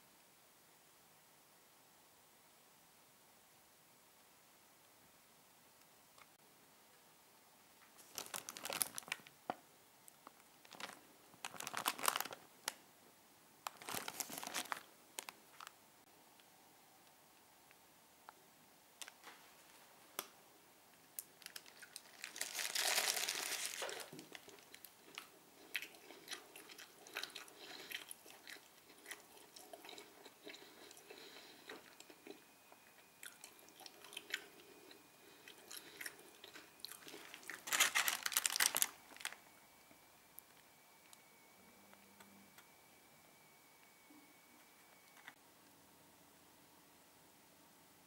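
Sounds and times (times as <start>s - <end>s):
chewing and crunching burger: 8.0s - 9.2s, 21.4s - 39.3s.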